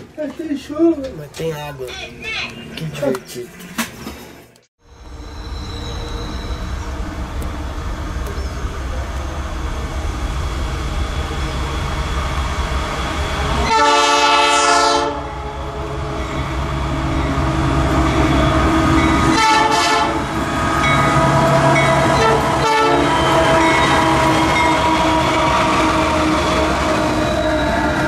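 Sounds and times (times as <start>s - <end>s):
locomotive engines running: 5.0s - 13.8s
train wheels on rails: 5.0s - 28.0s
locomotive air horn blasts: 13.6s - 16.2s, 19.2s - 20.4s, 22.2s - 26.7s.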